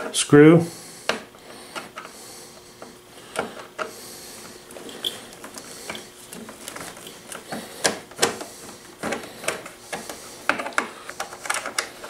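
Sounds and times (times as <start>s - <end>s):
screwdriver clicks and clatters: 4.7s - 12.0s.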